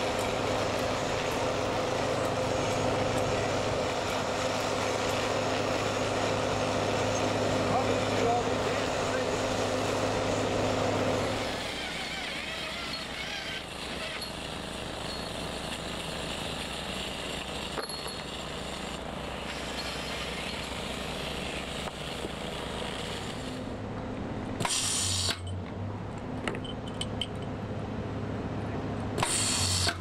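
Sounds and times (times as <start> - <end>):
machinery drone: 0.0 - 26.0
stud welding gun crackling arc: 11.6 - 23.7.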